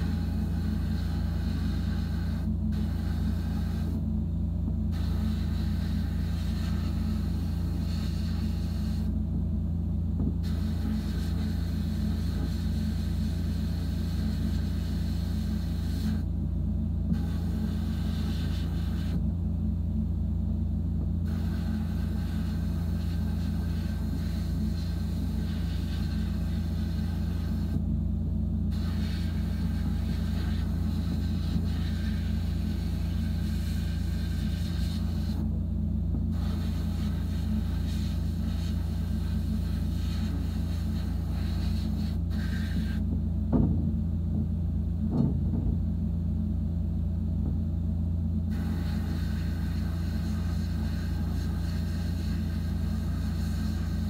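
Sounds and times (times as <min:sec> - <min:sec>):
blast nozzle hissing: 0:00.0 - 0:04.0, 0:04.9 - 0:09.1, 0:10.4 - 0:16.2, 0:17.1 - 0:19.2, 0:21.2 - 0:27.8, 0:28.7 - 0:35.4, 0:36.3 - 0:43.0, 0:48.5 - 0:54.0
low machine hum: 0:00.0 - 0:54.0.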